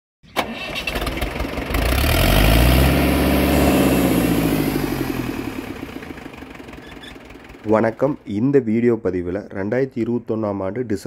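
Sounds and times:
engine starting click: 0.3 - 1.4
engine running rhythmic throb: 1.2 - 8.3.

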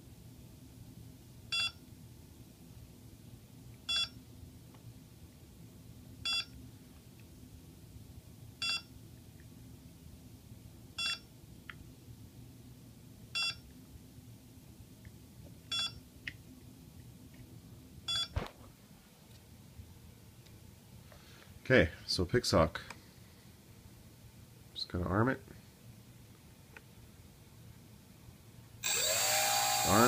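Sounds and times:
faint steady hum: 0.0 - 30.0
short electronic beeps: 15.7 - 16.0.

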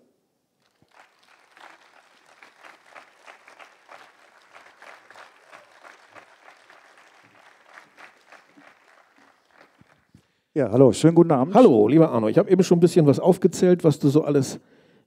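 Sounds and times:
faint audience applause: 0.6 - 10.3.

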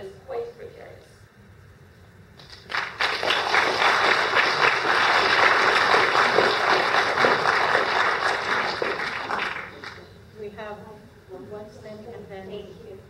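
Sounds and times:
audience applauding: 2.4 - 10.1.

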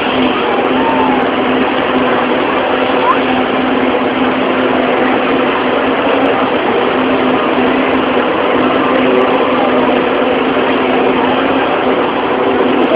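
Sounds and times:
broad rushing noise: 0.0 - 12.9
heavy machinery engine hum: 0.0 - 12.9.

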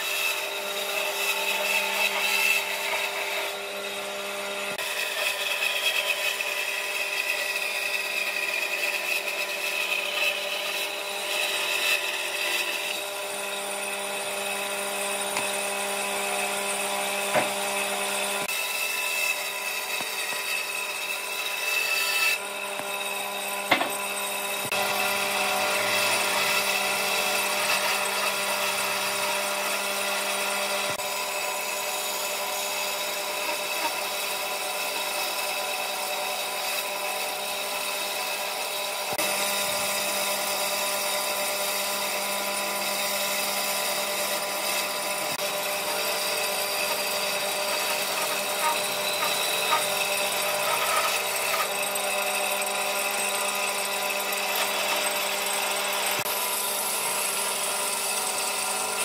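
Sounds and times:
bandsaw motor hum: 0.0 - 59.0
blade hissing through wood: 45.0 - 51.7.

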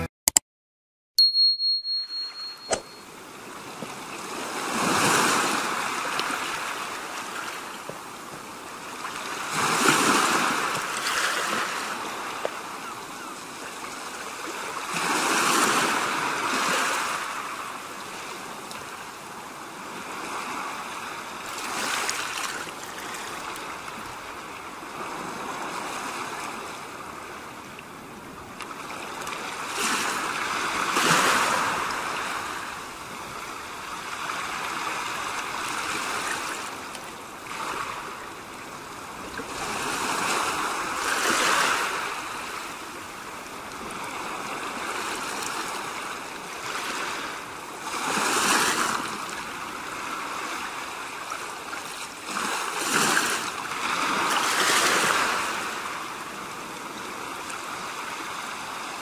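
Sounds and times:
ocean waves washing in: 3.0 - 13.1.

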